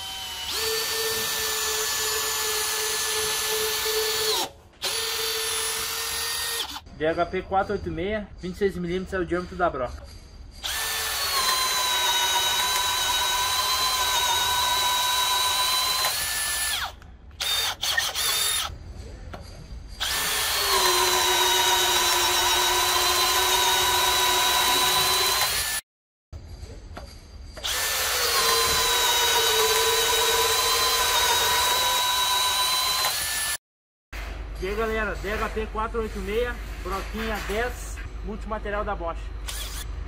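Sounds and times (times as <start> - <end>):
cordless drill boring into wood: 0.0 - 6.8, 10.6 - 18.7, 20.0 - 25.8, 27.6 - 33.6, 39.5 - 39.9.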